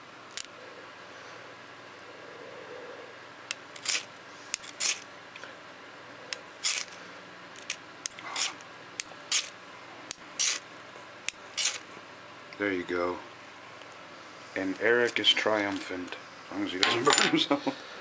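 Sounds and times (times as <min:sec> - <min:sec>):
knife scraping flint bar: 0:03.8 - 0:05.1, 0:06.6 - 0:07.0, 0:07.6 - 0:08.6, 0:09.3 - 0:09.6, 0:10.4 - 0:10.6, 0:11.5 - 0:11.9.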